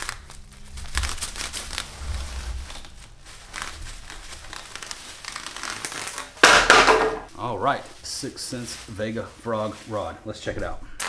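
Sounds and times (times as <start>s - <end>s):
loud ripping: 0.0s - 7.0s
packaging crinkling and rustling: 0.0s - 10.1s.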